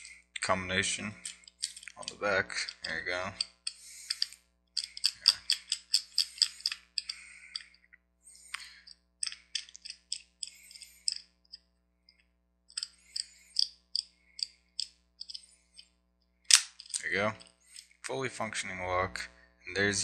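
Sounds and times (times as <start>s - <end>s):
padlock dial clicking: 1.2s - 7.7s, 9.2s - 11.2s, 12.7s - 15.9s.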